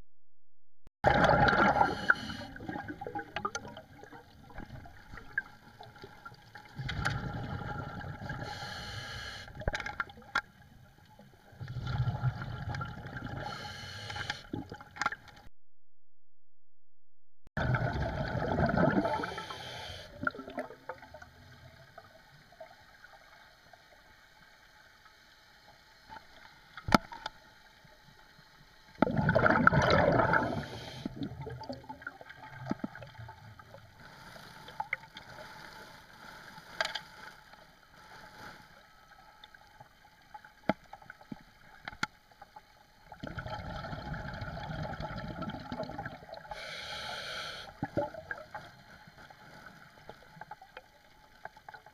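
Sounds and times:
underwater exhaled bubbles rushing: 1.0 - 8.6, 11.4 - 13.6, 17.6 - 22.7, 29.0 - 34.0, 43.0 - 46.7, 47.7 - 51.9.

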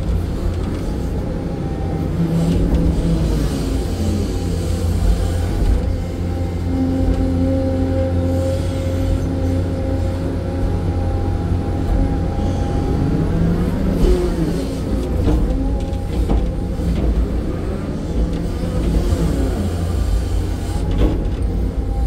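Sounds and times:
excavator diesel engine: 0.0 - 22.0.

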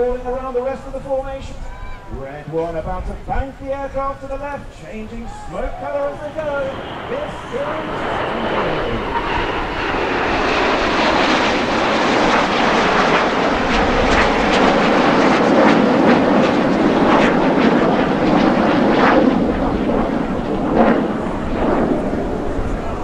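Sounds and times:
jets flying past: 0.0 - 23.0.

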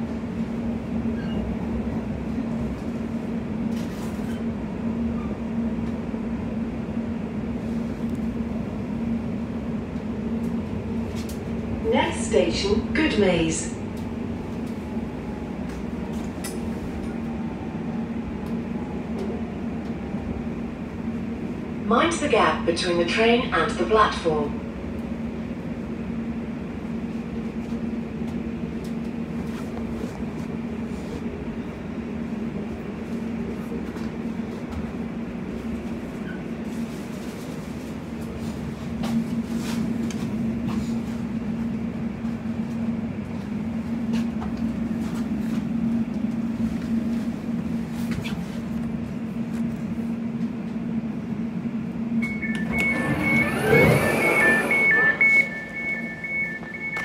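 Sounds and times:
train cabin hum: 0.0 - 57.0
door alert beeps: 52.2 - 57.0.

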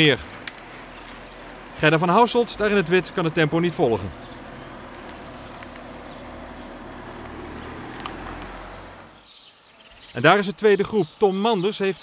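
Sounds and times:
car passing by: 3.0 - 9.2.

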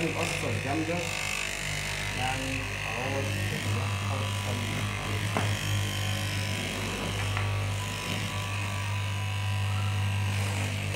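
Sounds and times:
fabric cutting machine buzzing: 0.0 - 10.9.

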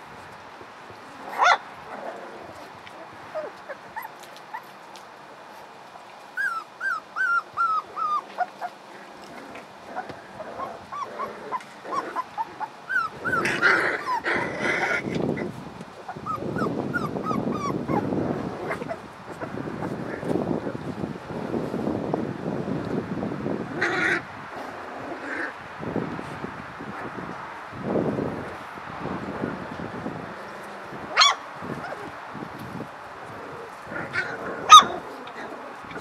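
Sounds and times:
puppies whining and yipping: 2.4 - 4.8, 6.4 - 9.3, 10.0 - 15.2, 16.1 - 19.5, 34.0 - 36.0.

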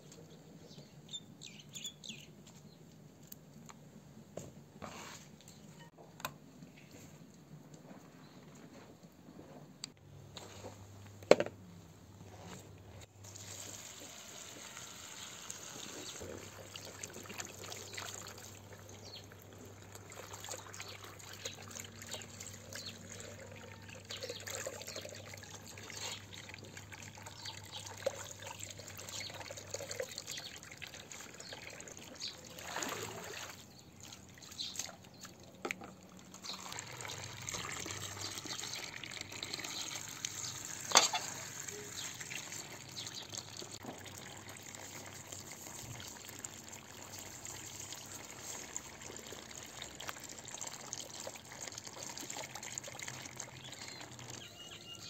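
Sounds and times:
water pouring into plastic bowl: 13.2 - 35.0, 35.9 - 54.5.

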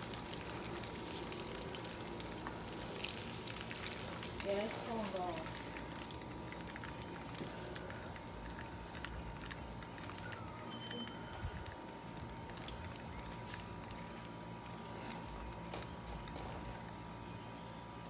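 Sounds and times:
oil sizzling in a frying pan: 0.0 - 7.5.

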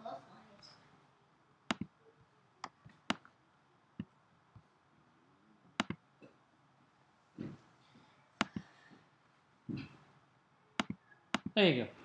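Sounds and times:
computer mouse clicking: 1.7 - 1.9, 5.8 - 6.0, 8.4 - 8.7, 10.8 - 11.6.

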